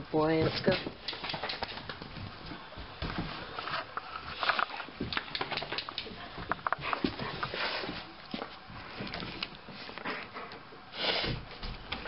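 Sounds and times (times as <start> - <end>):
soft clicks taps and rustles: 0.7 - 7.5.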